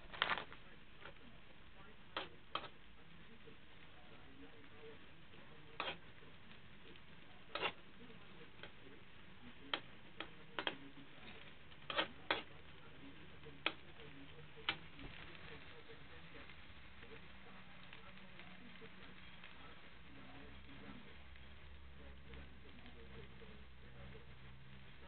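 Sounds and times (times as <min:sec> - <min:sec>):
metal spatula scraping a wok: 0:02.2 - 0:02.8, 0:05.7 - 0:06.2, 0:07.5 - 0:07.9, 0:10.2 - 0:12.6.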